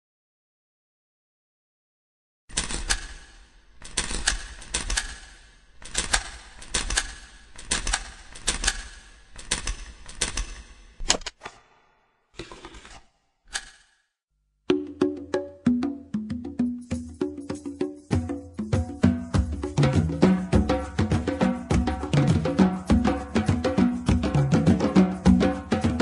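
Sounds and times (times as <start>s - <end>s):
rapid clicks clatter: 2.5s - 10.7s.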